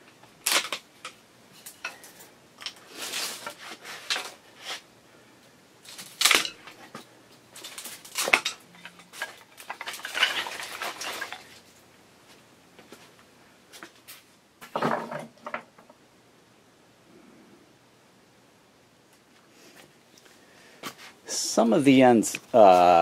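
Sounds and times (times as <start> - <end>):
rough noise of wood being worked: 2.8 - 4.9, 7.8 - 11.7.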